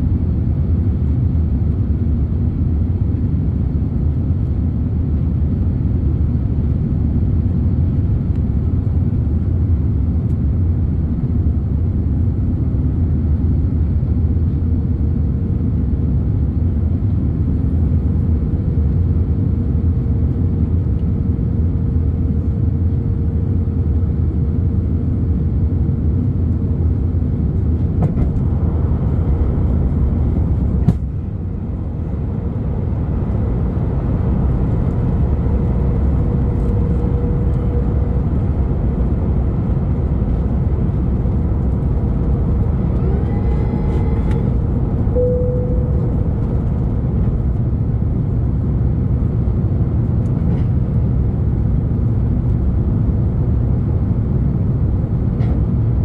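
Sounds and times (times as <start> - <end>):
jet engine rumble: 0.0 - 56.0
faint steady hum: 28.6 - 50.4.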